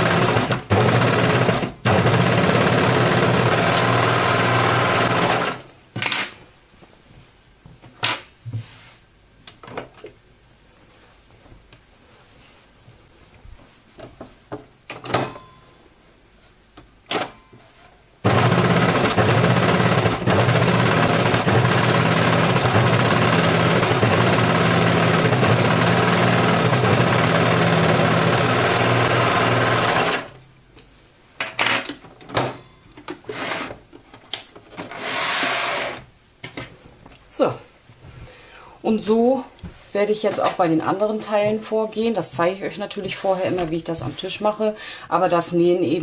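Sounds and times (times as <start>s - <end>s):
overlocker stitching at high speed: 0.0s - 5.7s, 18.2s - 30.4s.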